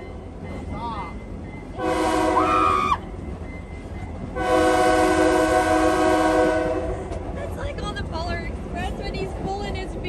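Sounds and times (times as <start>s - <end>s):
train rolling rumble: 0.0s - 10.0s
locomotive horn blasts: 1.8s - 2.8s, 4.3s - 7.1s.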